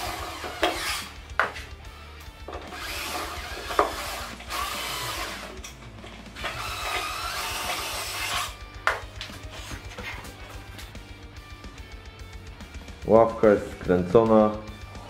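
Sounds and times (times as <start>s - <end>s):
cordless drill driving screws: 0.0s - 1.8s, 2.4s - 8.6s.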